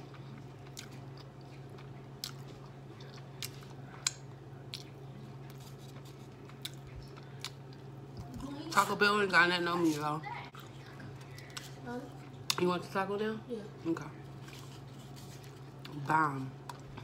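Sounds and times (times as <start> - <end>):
person chewing: 0.0 - 8.4.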